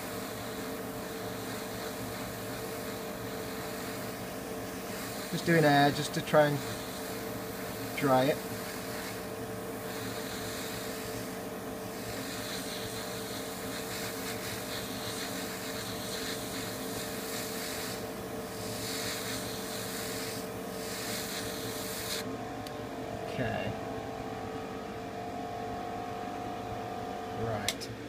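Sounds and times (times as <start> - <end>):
airbrush air hissing: 0.0 - 22.3
motor hum: 0.0 - 28.0.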